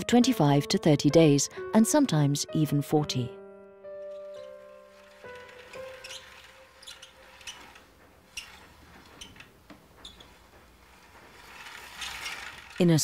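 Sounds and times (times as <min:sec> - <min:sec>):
film projector clicks and ticks: 0:11.0 - 0:13.0.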